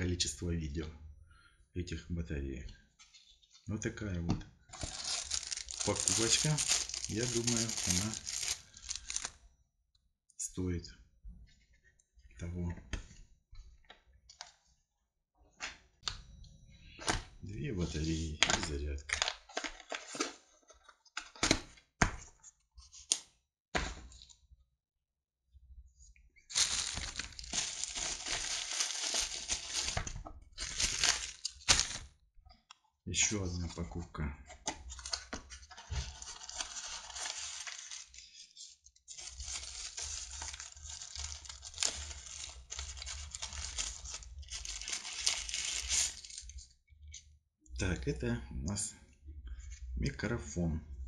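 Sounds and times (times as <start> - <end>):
plastic wrapping crinkling: 4.7 - 9.4, 26.5 - 32.0, 34.9 - 38.4, 39.1 - 46.6.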